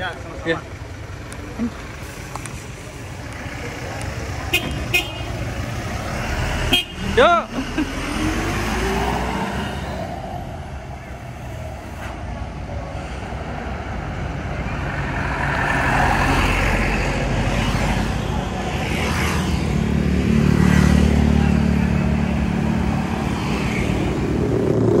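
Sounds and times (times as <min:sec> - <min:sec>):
deep engine drone: 0:23.9 - 0:25.0.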